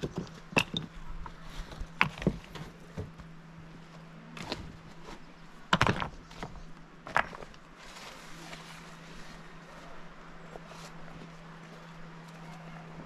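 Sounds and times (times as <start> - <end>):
plastic sacks rustling: 7.3 - 9.9.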